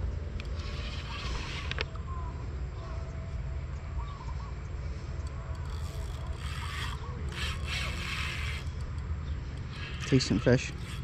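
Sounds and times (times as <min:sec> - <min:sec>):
fishing reel whirring: 0:00.4 - 0:02.2, 0:05.1 - 0:11.0.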